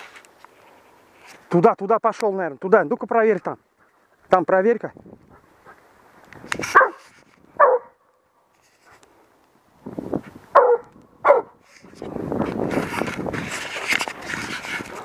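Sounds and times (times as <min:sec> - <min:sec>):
dog barking: 0:06.7 - 0:07.0, 0:07.6 - 0:08.0, 0:10.5 - 0:11.6.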